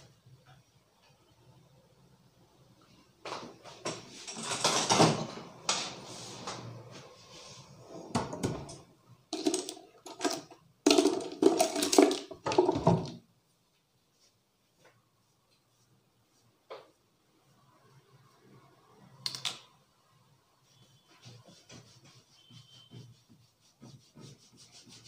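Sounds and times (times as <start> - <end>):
hands rubbing and patting: 20.6 - 25.0.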